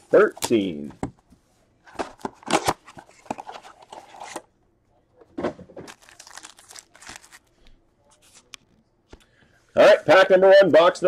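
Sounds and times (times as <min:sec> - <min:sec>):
plastic wrapping tearing and crinkling: 0:05.9 - 0:07.6.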